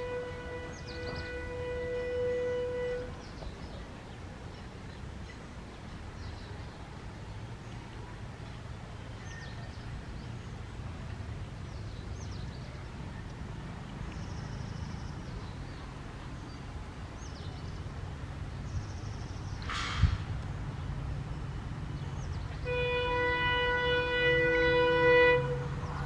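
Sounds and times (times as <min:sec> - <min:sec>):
loud train horn blast: 0:00.0 - 0:03.3, 0:22.6 - 0:26.0
diesel locomotive rumble: 0:00.0 - 0:26.0
birds chirping and trilling: 0:00.5 - 0:03.8.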